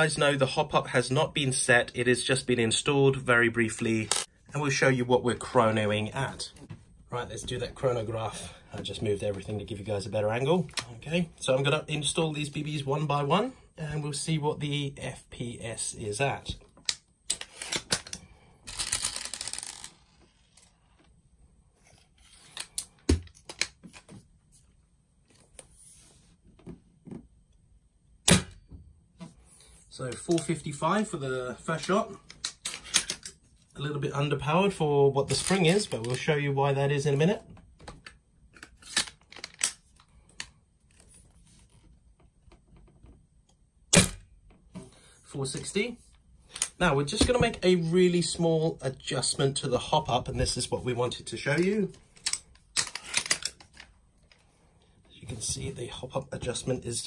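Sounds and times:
rifle handling clicks and rattles: 0:31.8 - 0:33.4, 0:37.9 - 0:40.6, 0:51.5 - 0:54.4.

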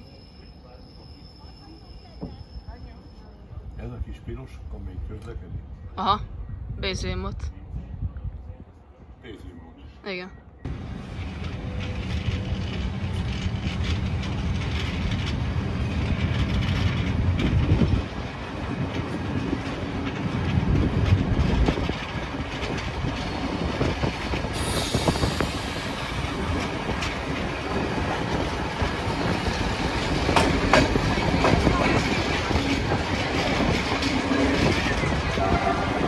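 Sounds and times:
train rumbling: 0:10.6 - 0:36.0
wheels clattering over rails: 0:10.7 - 0:36.0
hiss: 0:24.5 - 0:26.0.

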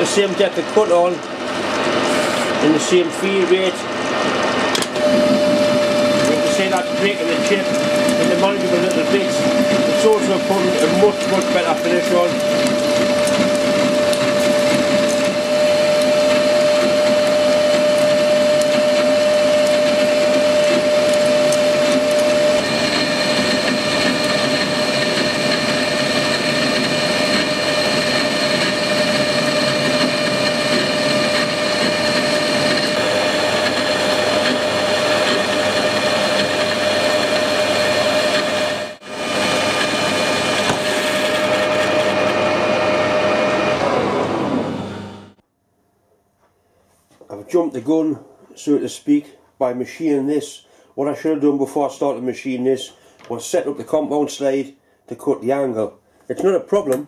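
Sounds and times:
metal lathe cutting whine: 0:00.0 - 0:45.4.

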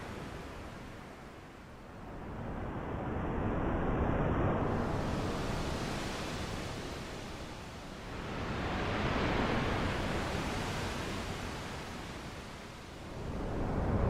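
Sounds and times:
rushing wash of noise: 0:13.0 - 0:14.0.

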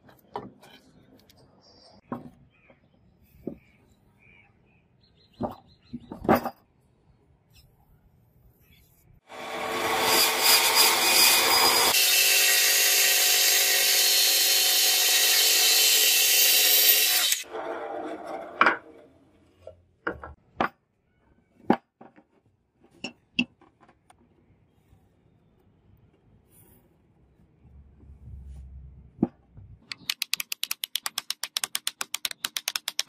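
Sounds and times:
bandsaw cutting wood: 0:09.3 - 0:18.6.

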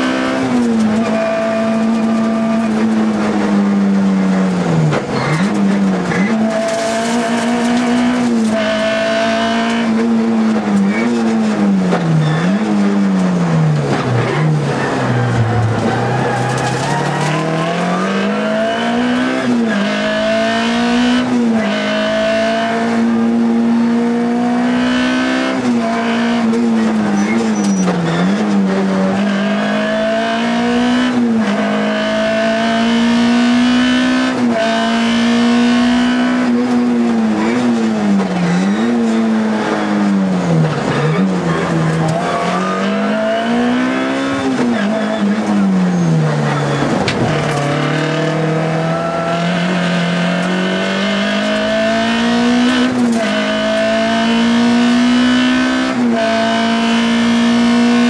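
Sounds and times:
rally car engine revving: 0:00.0 - 0:58.0.

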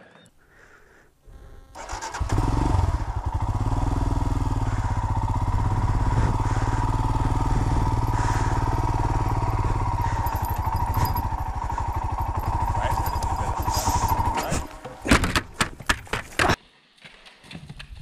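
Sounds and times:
motorcycle engine thumping: 0:04.6 - 0:16.6.

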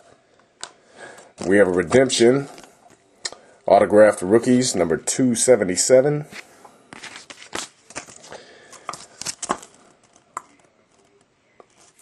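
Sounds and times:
paper rustling: 0:06.3 - 0:10.3.

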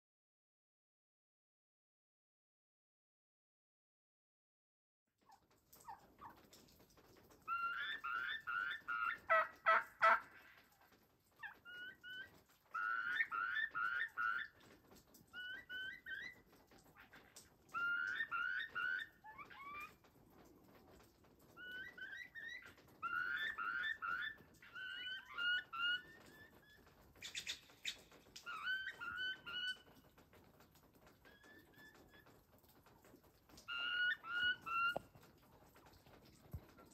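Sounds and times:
wild turkeys calling: 0:07.4 - 0:10.7, 0:11.4 - 0:14.6, 0:15.3 - 0:20.0, 0:21.5 - 0:30.0, 0:33.6 - 0:35.2.

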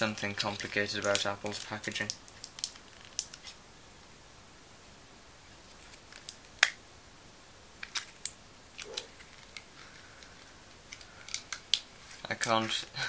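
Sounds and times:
plastic packaging clicks and snaps: 0:00.0 - 0:03.6, 0:05.9 - 0:06.8, 0:07.8 - 0:12.5.

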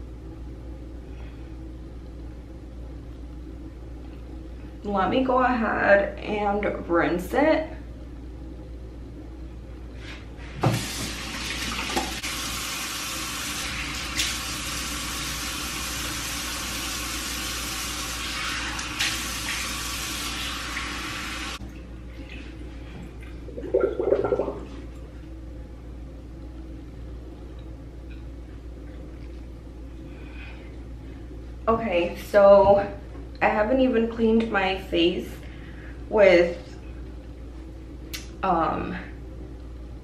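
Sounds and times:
water splashing on face: 0:23.2 - 0:24.8.

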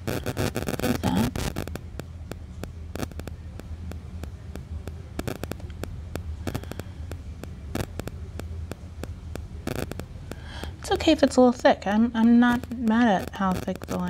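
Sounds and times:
small irregular clicks: 0:00.0 - 0:11.0, 0:12.2 - 0:14.0
low steady hum: 0:00.0 - 0:14.0.

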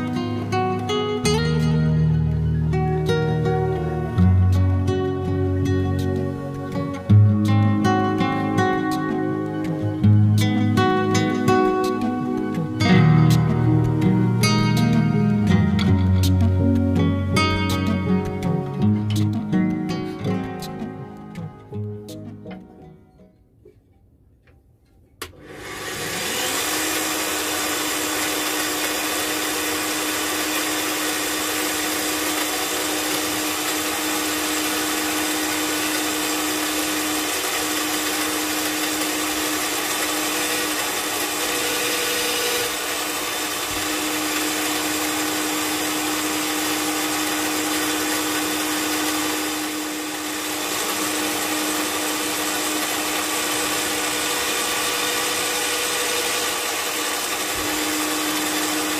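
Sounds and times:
drill press motor hum: 0:25.2 - 0:58.9.

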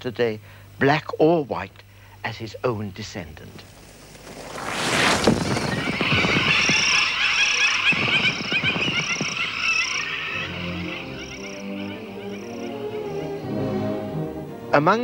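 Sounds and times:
flock of birds chattering: 0:03.5 - 0:13.8
wings fluttering: 0:03.6 - 0:12.4.

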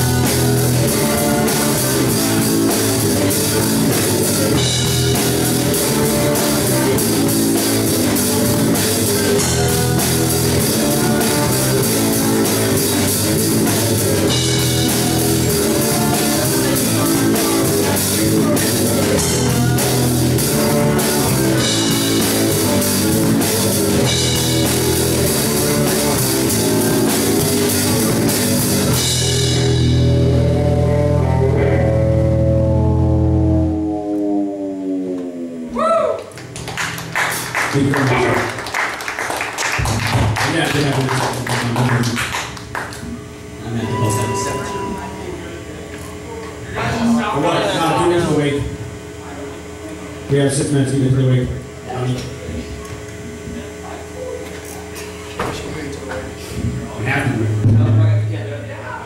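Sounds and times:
sustained guitar chord ringing: 0:00.0 - 0:35.8, 0:43.5 - 0:45.9, 0:46.6 - 0:48.6
live rock band playing: 0:00.0 - 0:41.8, 0:43.7 - 0:45.5.

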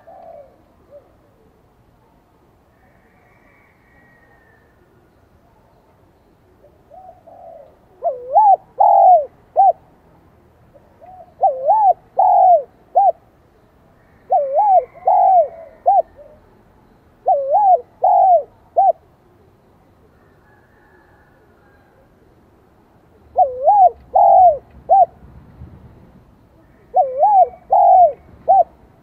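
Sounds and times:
dove cooing: 0:00.0 - 0:01.6, 0:06.6 - 0:09.8, 0:10.8 - 0:13.3, 0:14.2 - 0:16.6, 0:17.2 - 0:19.4, 0:23.1 - 0:25.2, 0:26.7 - 0:28.8.

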